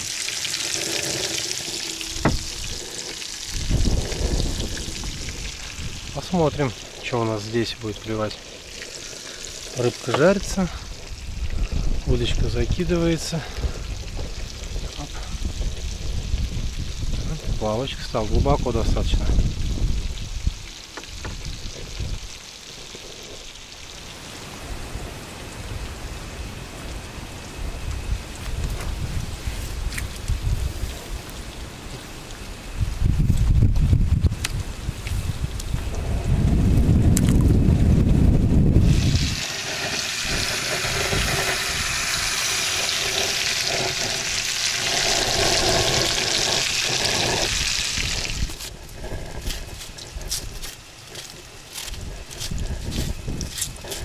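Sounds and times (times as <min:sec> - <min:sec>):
faint crackles: 0:00.0 - 0:17.6, 0:20.0 - 0:24.2, 0:39.0 - 0:54.0
fish sizzling in oil: 0:00.0 - 0:35.8, 0:37.6 - 0:54.0.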